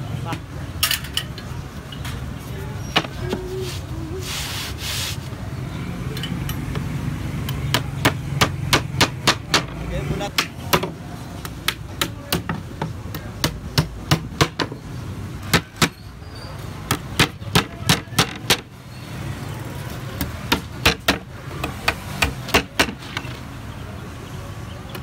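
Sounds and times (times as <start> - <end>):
hammer striking nails into wood: 20.5 - 23.0.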